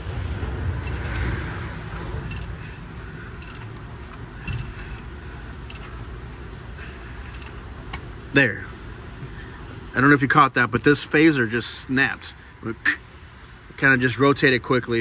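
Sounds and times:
handling noise: 0.8s - 1.3s, 2.0s - 2.8s, 3.4s - 6.1s
light metallic clicks: 2.3s - 2.6s, 3.4s - 4.8s, 5.7s - 6.0s.

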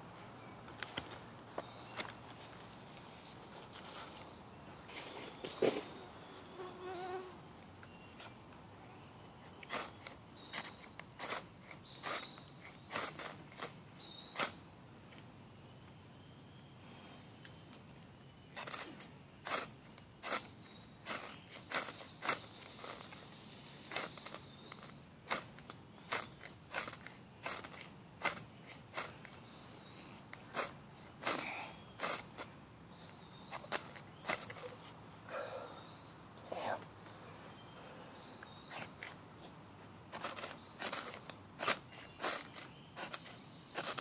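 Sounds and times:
fire striker scraping sparks: 18.6s - 23.2s, 23.9s - 29.4s, 32.0s - 32.5s, 40.1s - 44.0s.

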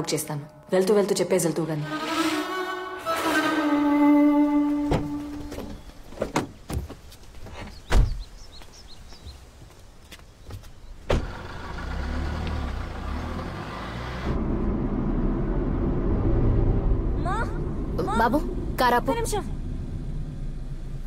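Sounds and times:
car door shutting: 4.6s - 7.0s, 11.1s - 11.4s
car engine rumbling: 10.8s - 21.0s.

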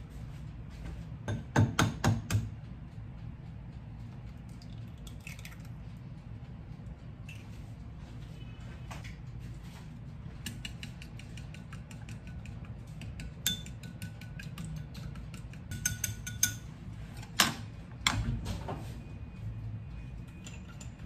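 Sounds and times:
chopsticks clicking against bowl: 10.4s - 16.6s
porcelain ringing: 13.2s - 16.7s.

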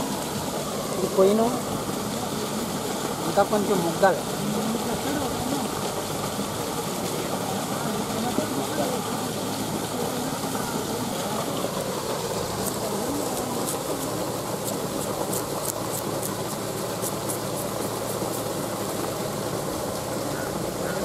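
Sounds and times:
knife scraping pineapple rind: 12.2s - 18.6s.

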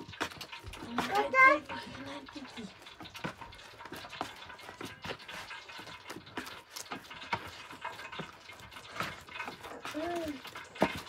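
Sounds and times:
hands kneading dough: 0.0s - 11.0s.

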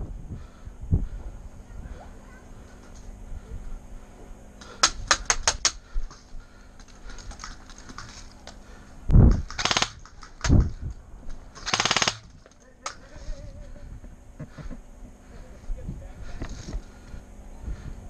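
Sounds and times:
airsoft gunshots: 9.5s - 10.2s, 11.6s - 12.4s.

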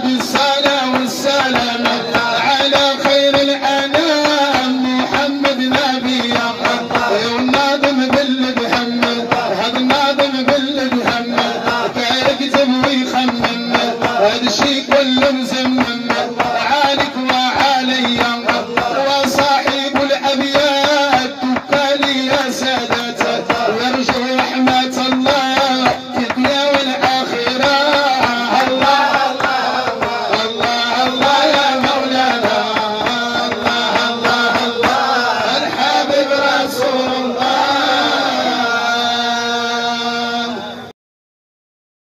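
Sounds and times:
fast drum beat: 0.0s - 38.7s
chanted song singing: 0.0s - 40.9s.

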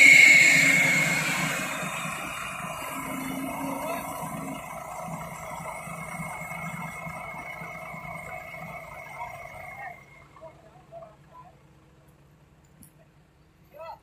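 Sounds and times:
thin high whine: 0.0s - 10.8s
diesel engine running: 0.0s - 13.7s.

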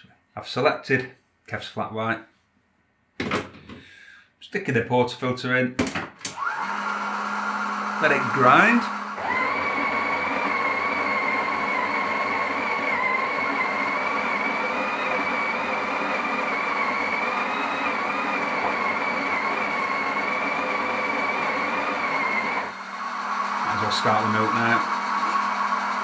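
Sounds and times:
coffee grinder grinding beans: 6.4s - 26.0s.

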